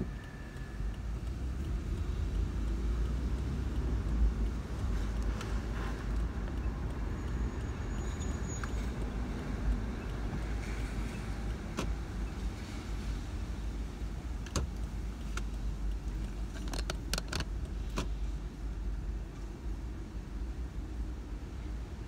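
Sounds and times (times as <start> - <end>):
sharp clicks and taps: 0.0 - 10.8, 14.4 - 18.2
car driving low rumble: 0.0 - 22.0.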